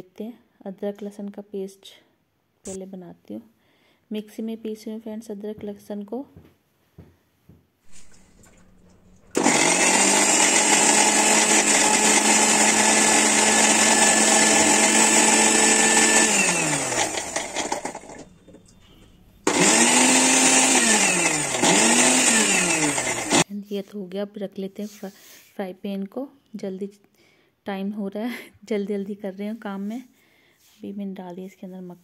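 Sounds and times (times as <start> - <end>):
mixer grinder motor grinding: 7.9 - 23.4.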